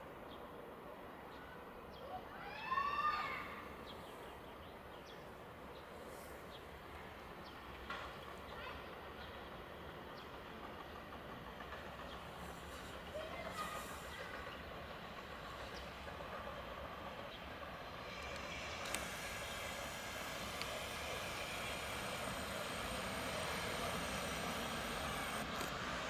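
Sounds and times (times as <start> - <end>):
locomotive rumble: 6.9 - 26.0.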